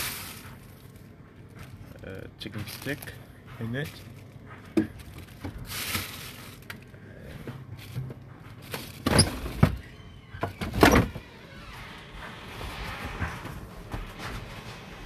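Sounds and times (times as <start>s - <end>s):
plastic bags rustling: 0.0s - 10.0s
plastic freezer drawer sliding: 7.9s - 11.4s.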